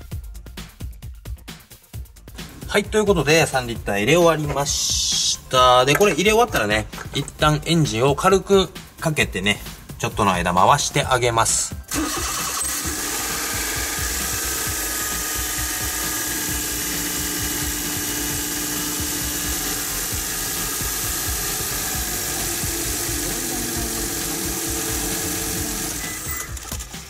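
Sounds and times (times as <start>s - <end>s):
van engine idling: 11.9s - 26.4s.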